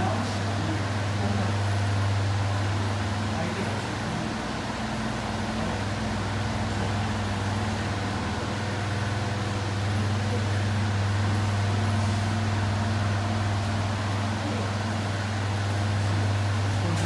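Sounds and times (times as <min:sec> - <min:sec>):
fan humming and rushing: 0:00.0 - 0:17.0.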